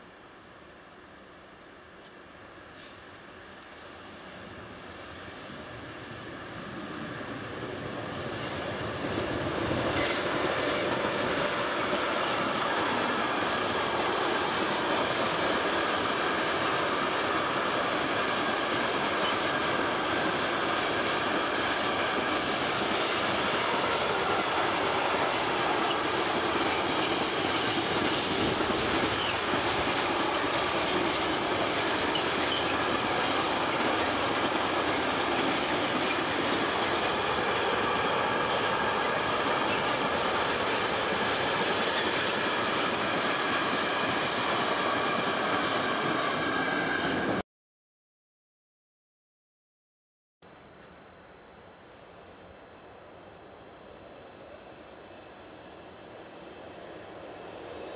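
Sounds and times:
freight train wheels clattering: 8.3 - 46.8
faint wheel squeal: 32.0 - 32.9.

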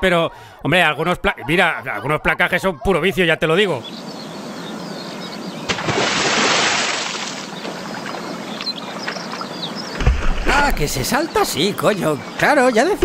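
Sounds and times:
water splashing: 5.6 - 11.5
body smacking into water: 5.7 - 7.6.

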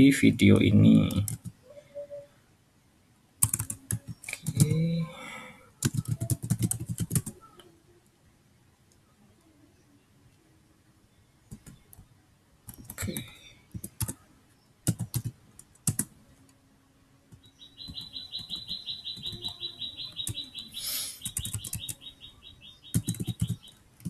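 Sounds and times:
computer keyboard typing: 1.0 - 1.6, 3.4 - 4.8, 5.8 - 7.4, 11.5 - 12.0, 12.7 - 14.2, 14.8 - 16.1, 17.3 - 20.6, 21.2 - 22.1, 22.8 - 23.8
bird chirping fast high notes: 17.6 - 23.6.

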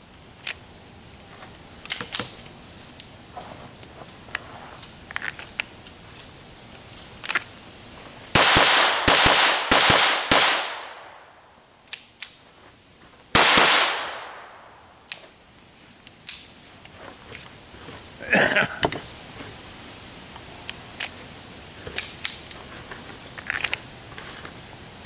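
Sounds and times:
gunshots with echoing tail: 8.4 - 11.3, 13.4 - 14.7.

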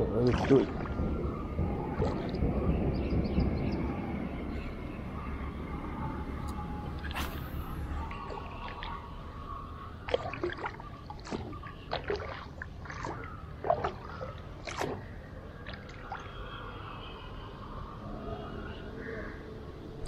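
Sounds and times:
paddle splashing in water: 0.2 - 1.0, 7.0 - 9.1, 10.0 - 16.4.

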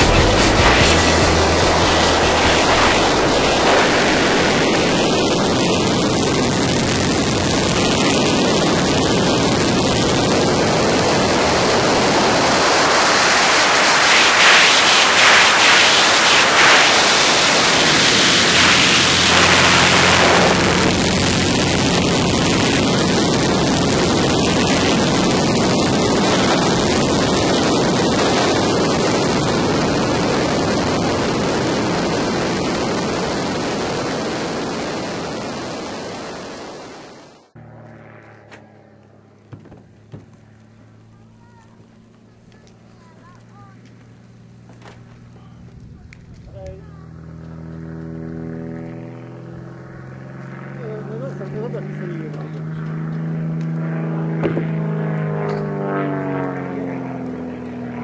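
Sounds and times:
plane piston engine: 0.0 - 4.9
airflow rushing: 0.0 - 37.6.

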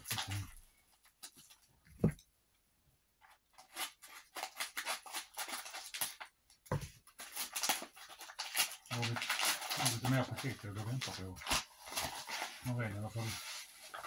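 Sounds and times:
paper crackling and tearing: 3.6 - 6.2, 7.1 - 14.0.

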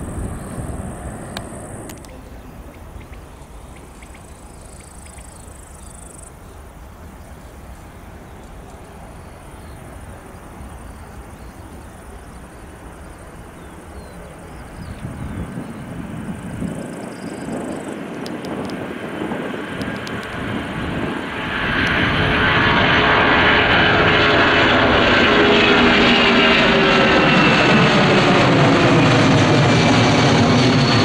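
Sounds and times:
insects chirping: 0.0 - 21.0
jet engines rumbling: 0.0 - 31.0.

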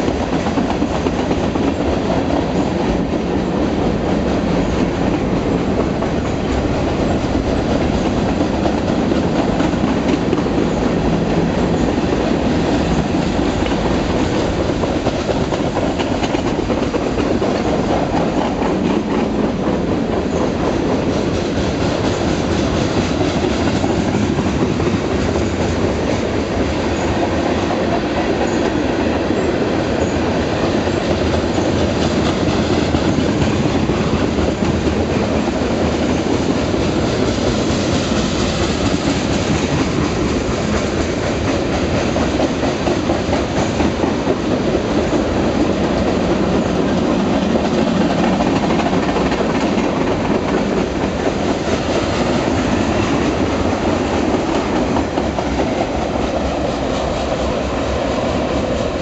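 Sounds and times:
train wheels on rails: 0.0 - 59.0.

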